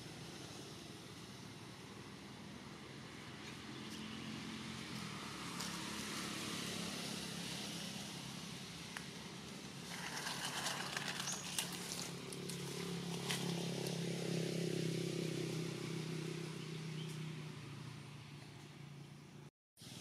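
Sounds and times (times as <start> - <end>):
branches and leaves rustling: 4.9 - 15.2.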